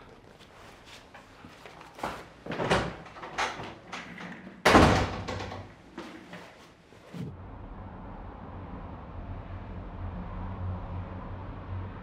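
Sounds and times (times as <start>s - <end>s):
door slamming: 4.6s - 5.7s.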